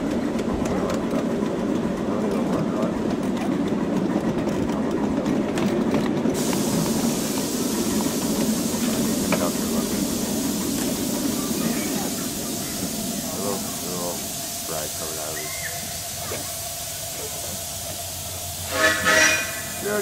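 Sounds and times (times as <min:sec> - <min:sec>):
wheels clicking: 0:00.0 - 0:18.4
miniature train rumbling on track: 0:00.0 - 0:20.0
steam hissing: 0:06.3 - 0:20.0.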